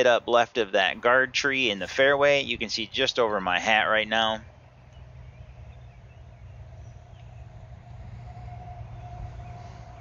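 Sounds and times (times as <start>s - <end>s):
low steady rumble: 0.0s - 10.0s
bird chirps: 4.5s - 7.6s, 8.2s - 10.0s.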